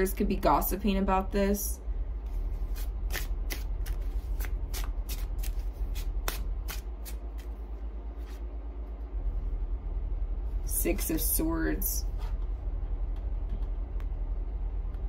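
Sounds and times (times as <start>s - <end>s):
cards being shuffled: 2.5s - 7.6s.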